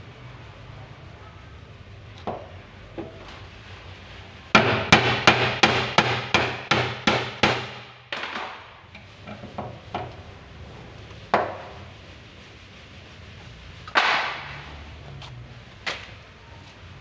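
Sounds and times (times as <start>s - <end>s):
hammer striking a punch: 4.6s - 8.4s.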